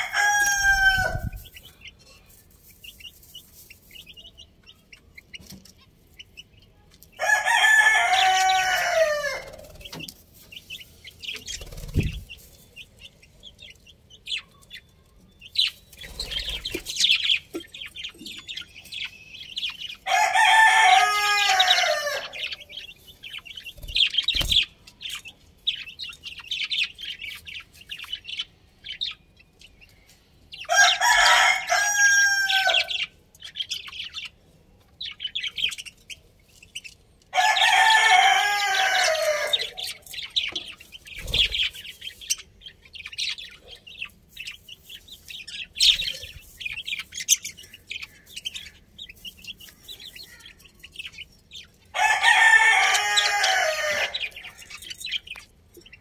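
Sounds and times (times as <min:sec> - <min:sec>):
rooster crowing: 0:00.0 - 0:01.3, 0:07.2 - 0:09.6, 0:20.0 - 0:22.4, 0:30.7 - 0:33.0, 0:37.4 - 0:39.8, 0:51.9 - 0:54.4
budgerigars chirping: 0:02.7 - 0:34.4, 0:35.0 - 0:56.0.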